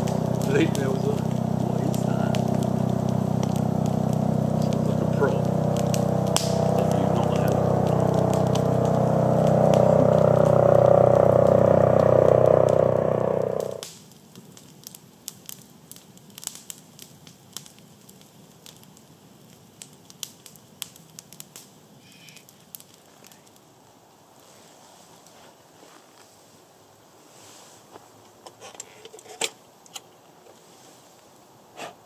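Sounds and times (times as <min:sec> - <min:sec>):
propeller aircraft droning overhead: 0:00.0 - 0:13.8
campfire crackling and popping: 0:00.0 - 0:24.5.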